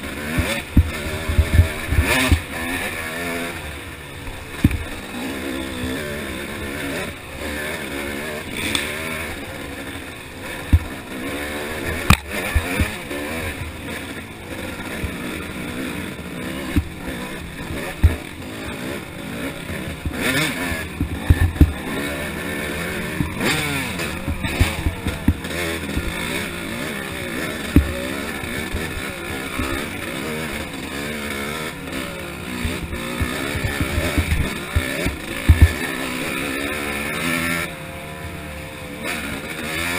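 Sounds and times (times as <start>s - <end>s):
dirt bike engine revving: 0.0s - 39.9s
bike knocking on rocks: 0.3s - 2.4s, 10.7s - 10.9s, 12.0s - 13.0s, 16.7s - 17.0s, 17.8s - 18.2s, 20.0s - 22.0s, 23.1s - 26.4s, 27.6s - 28.1s, 32.6s - 35.9s.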